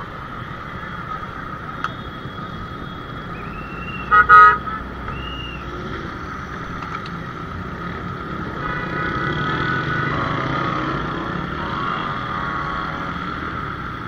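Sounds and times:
traffic engines running: 0:00.0 - 0:14.0
vehicle horn double blast: 0:04.0 - 0:04.9.

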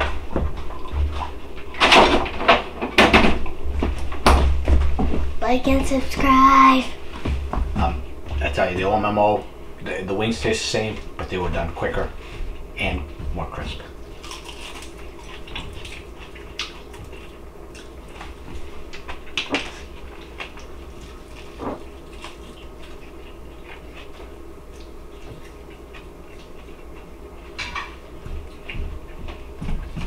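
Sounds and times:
steady low hum: 0:00.0 - 0:30.0
person chewing crunchy food: 0:14.0 - 0:30.0.

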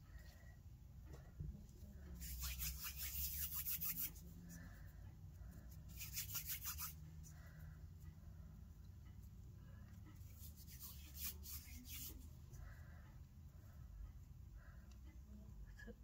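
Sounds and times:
scratchy rubbing strokes: 0:02.1 - 0:04.9, 0:05.5 - 0:07.4, 0:10.2 - 0:12.4.

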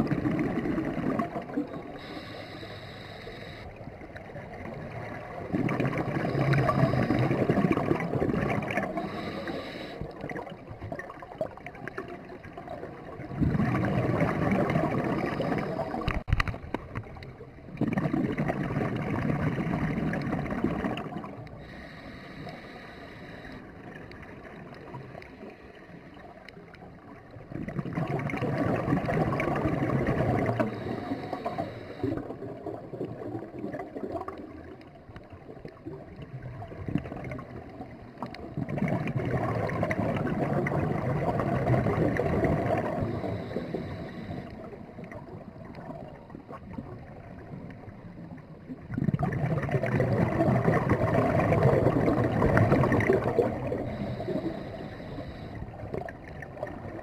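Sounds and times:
quiet regulator hiss: 0:01.4 - 0:11.0, 0:21.2 - 0:27.5, 0:29.8 - 0:32.4, 0:41.2 - 0:48.9, 0:52.2 - 0:57.0
air bubbling underwater: 0:05.3 - 0:09.2, 0:13.3 - 0:16.5, 0:48.9 - 0:54.2.

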